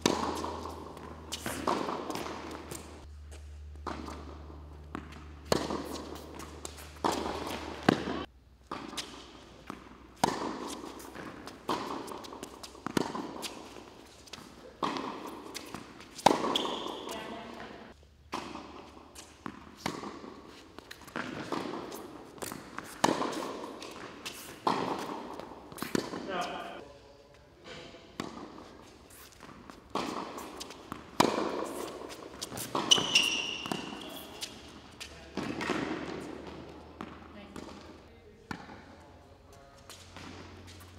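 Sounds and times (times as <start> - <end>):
tennis ball bouncing on court: 0.0 - 26.8, 28.2 - 38.9, 39.9 - 40.9
tennis ball struck by racquets: 0.0 - 26.8, 28.2 - 38.9, 39.9 - 40.9
high squeak: 32.8 - 34.4.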